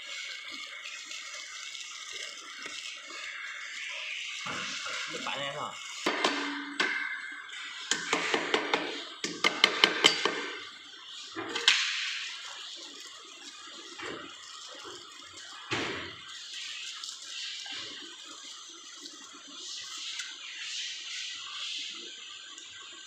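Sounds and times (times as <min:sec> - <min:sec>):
thump: 0:15.7 - 0:16.1.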